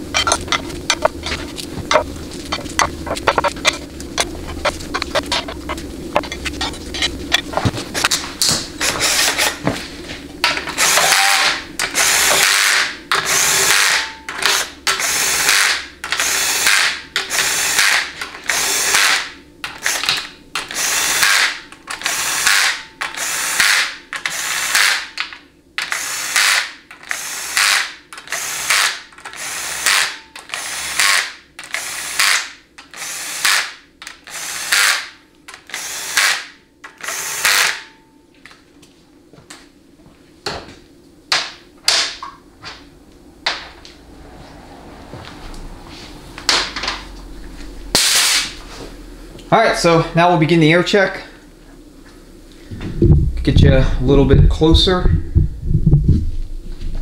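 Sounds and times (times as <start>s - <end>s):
cordless drill running down bolts: 8.8s - 9.6s, 10.8s - 25.2s, 25.8s - 37.8s.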